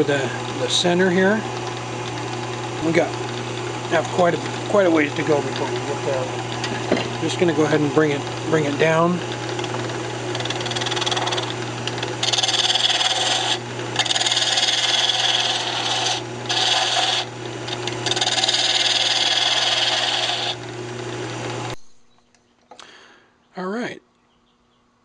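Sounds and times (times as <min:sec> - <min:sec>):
turning tool scraping wood: 0:00.0 - 0:21.8
wood lathe humming: 0:00.0 - 0:21.8.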